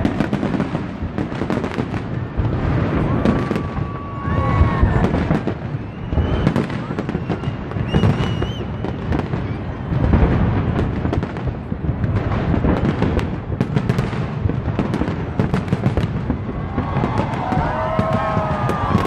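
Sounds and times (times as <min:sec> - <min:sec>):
fireworks bursts and crackles: 0:00.0 - 0:19.0
high wavering whistle: 0:05.7 - 0:09.0.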